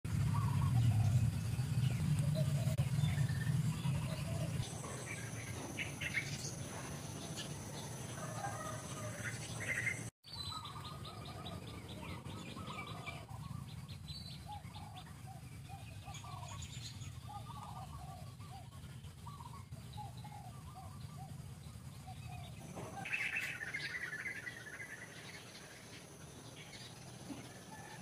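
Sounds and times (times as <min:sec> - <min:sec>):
birds chirping and calling: 0:00.1 - 0:28.0
steady low hum: 0:00.1 - 0:28.0
ticking bird calls: 0:17.2 - 0:21.4.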